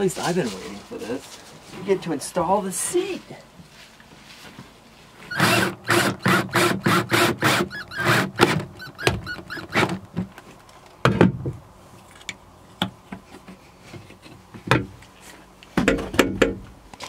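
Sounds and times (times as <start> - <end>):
cordless drill pulsing: 5.3 - 10.0.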